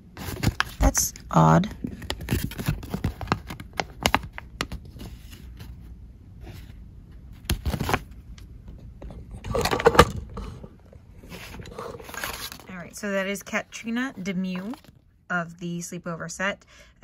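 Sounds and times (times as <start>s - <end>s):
packaging clicks and scraping: 1.8s - 5.5s, 9.3s - 10.6s, 11.2s - 12.8s
paper rustling: 11.2s - 12.8s.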